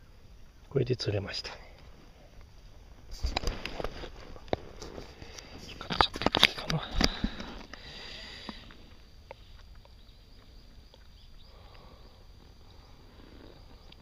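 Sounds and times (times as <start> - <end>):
small underwater ticks and clicks: 3.2 - 12.8.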